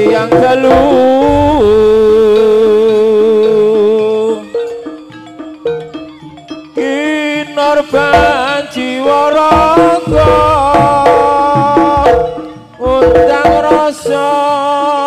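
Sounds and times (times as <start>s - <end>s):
loud melody of held notes: 0.0s - 14.6s
low beats: 0.4s - 3.1s, 9.5s - 14.0s
hand drum strokes: 9.5s - 13.9s.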